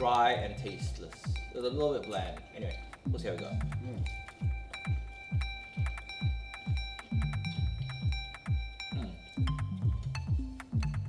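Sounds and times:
electronic music: 0.0s - 11.0s
kick drum beat: 0.0s - 11.0s
ticking percussion: 0.0s - 11.0s.

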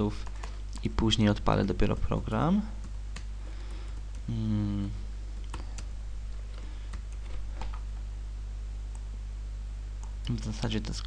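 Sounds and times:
low electrical hum: 0.0s - 11.0s
person humming: 4.3s - 5.1s.

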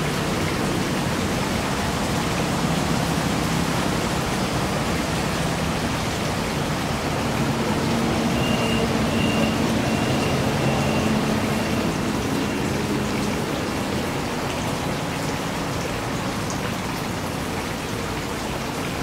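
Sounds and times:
water flowing in stream: 0.0s - 19.0s.

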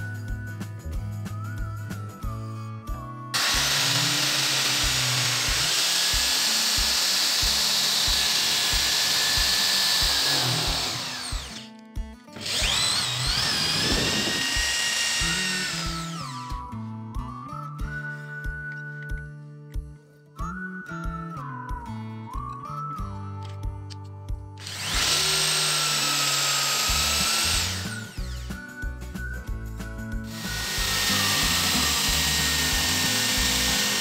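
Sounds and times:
background music: 0.0s - 34.0s
blade shaving wood hiss: 3.4s - 11.6s, 30.4s - 34.0s
power drill motor whining: 3.4s - 11.7s, 12.4s - 16.7s, 24.6s - 28.7s, 30.3s - 34.0s.

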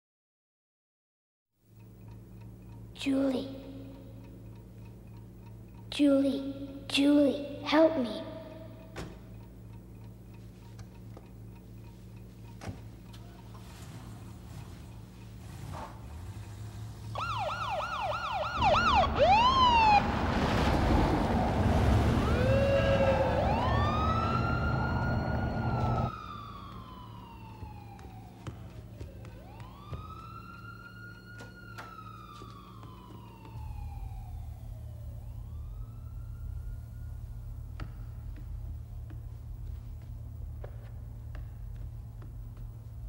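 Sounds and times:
siren yelping and wailing: 17.1s - 20.1s, 22.1s - 37.8s.

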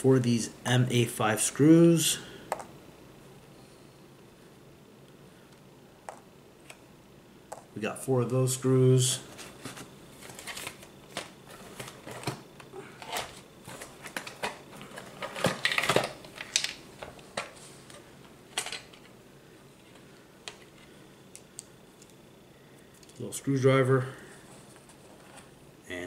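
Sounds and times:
small parts clicking and rattling: 14.2s - 16.8s, 18.5s - 19.1s.

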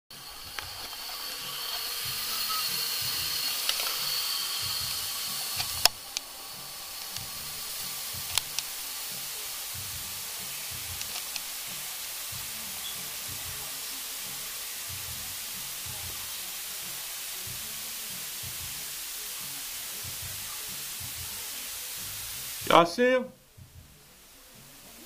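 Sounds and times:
steady hiss with high whistle: 0.1s - 25.0s
sharp clicks: 11.0s - 11.5s.

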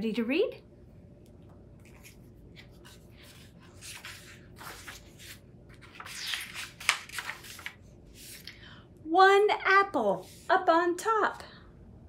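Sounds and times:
book pages rustling: 1.8s - 8.6s
page snapping: 5.9s - 7.8s.

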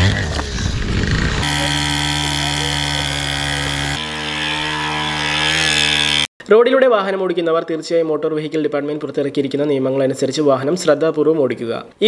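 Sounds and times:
rough scrambling noise: 0.0s - 6.3s
small two-stroke engine revving: 0.0s - 6.3s.

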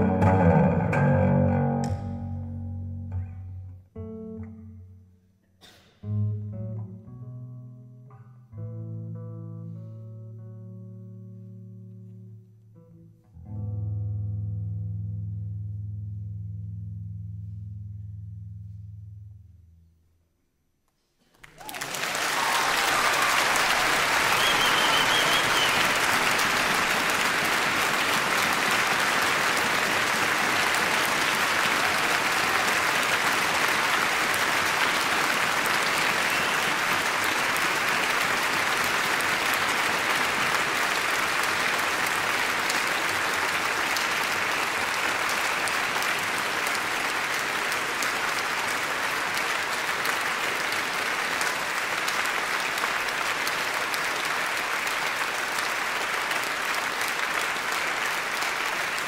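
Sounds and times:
audience applauding: 21.2s - 59.0s.

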